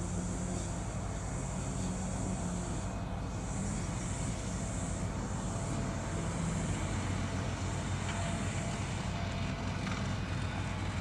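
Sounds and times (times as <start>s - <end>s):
mower engine humming: 0.0s - 11.0s.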